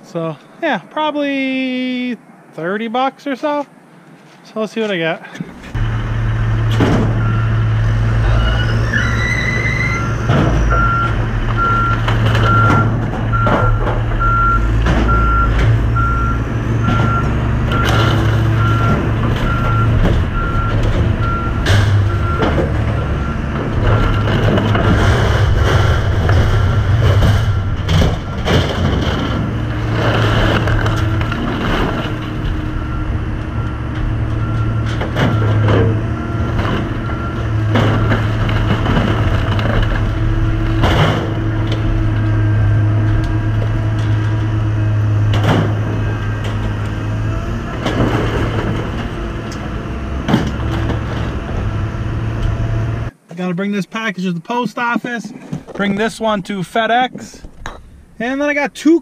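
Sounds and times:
diesel engines running: 3.6s - 53.3s, 54.8s - 59.0s
reversing alarm beeping: 7.1s - 24.3s, 32.6s - 38.1s.

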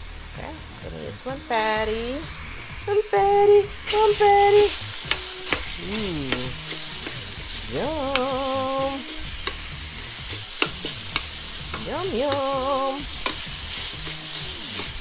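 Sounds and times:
meat sizzling in a pan: 0.0s - 15.0s
metal utensil scraping a pan: 3.7s - 15.0s.

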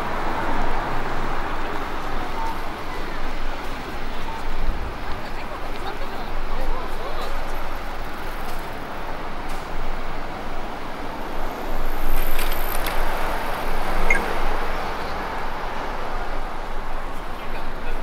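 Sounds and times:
passing cars hum: 0.0s - 18.0s.

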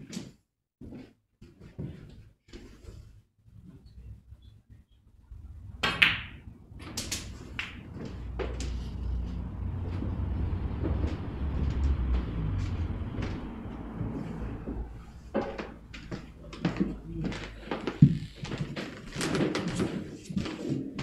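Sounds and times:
low steady rumble: 3.9s - 18.4s
snooker balls clicking: 5.7s - 20.6s.

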